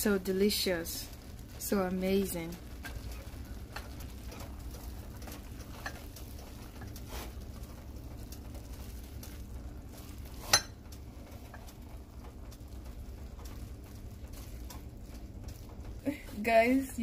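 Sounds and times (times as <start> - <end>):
steady low hum: 0.0 - 17.0
spoon stirring noodles in pot: 2.2 - 16.0
spoon clinking against metal pot: 10.5 - 10.8.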